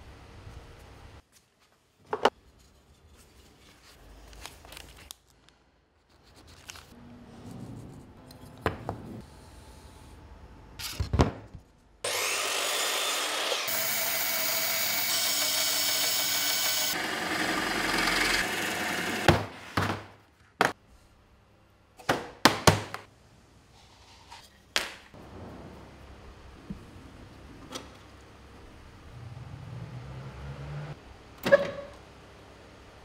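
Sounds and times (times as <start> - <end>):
power saw cutting wood: 12.1 - 19.8.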